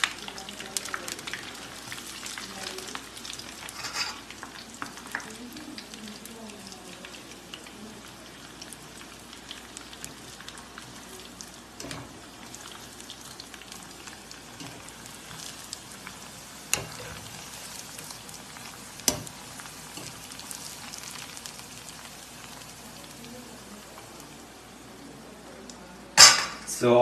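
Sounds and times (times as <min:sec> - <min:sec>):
food deep-frying in oil: 0:00.0 - 0:27.0.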